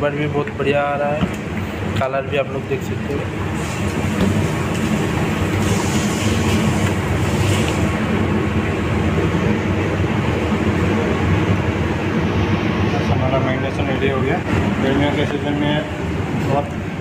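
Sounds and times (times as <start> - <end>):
kitchen machinery droning: 0.0 - 17.0.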